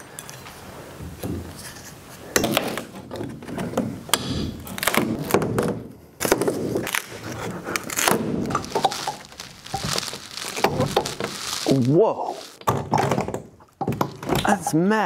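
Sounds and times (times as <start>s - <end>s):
creaking scraping wood: 6.4s - 12.6s.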